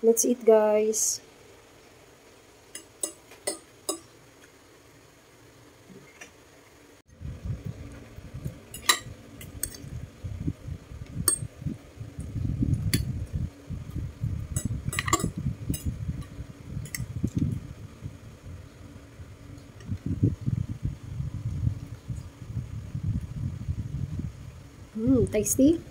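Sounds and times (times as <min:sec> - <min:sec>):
low uneven rumble: 0:07.1 - 0:25.9
fork clinking on a plate: 0:14.6 - 0:15.9.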